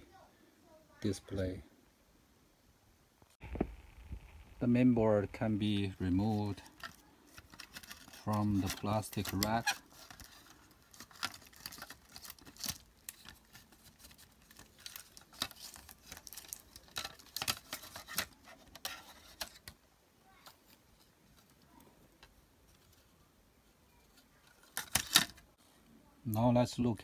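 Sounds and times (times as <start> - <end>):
hard plastic clicks and rustling: 6.4 - 19.8, 24.0 - 25.5.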